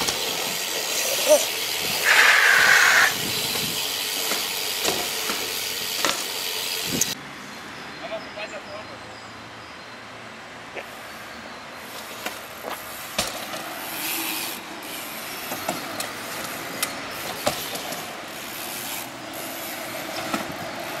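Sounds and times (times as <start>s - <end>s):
bicycle tyres rolling on asphalt: 0.0s - 7.2s, 11.1s - 21.0s
wheels knocking on ramp edges: 3.2s - 6.3s.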